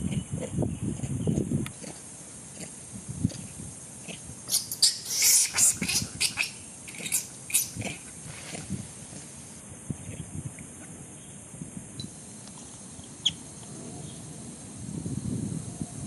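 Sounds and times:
high-pitched animal squeaks: 0:04.5 - 0:07.9.

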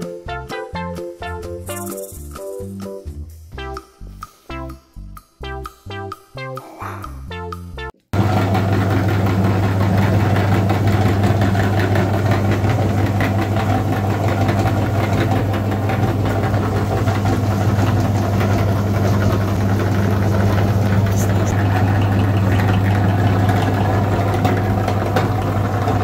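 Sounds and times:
music: 0:00.0 - 0:08.1
electric meat grinder humming: 0:08.2 - 0:26.0.

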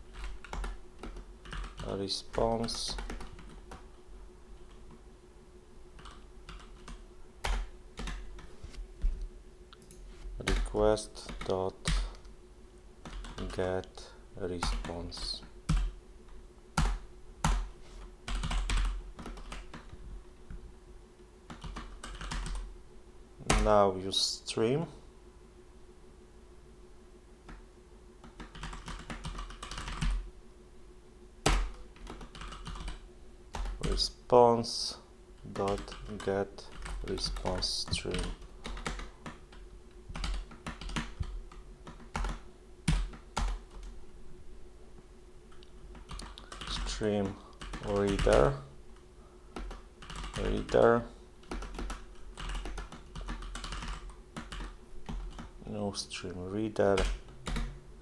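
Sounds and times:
faint steady hum: 0:00.0 - 0:58.0
computer keyboard keystrokes: 0:00.2 - 0:03.8, 0:18.3 - 0:19.9, 0:21.5 - 0:22.6, 0:28.2 - 0:30.2, 0:31.5 - 0:34.0, 0:35.5 - 0:44.0, 0:45.5 - 0:48.5, 0:49.6 - 0:50.8, 0:51.4 - 0:55.5, 0:57.0 - 0:57.8.

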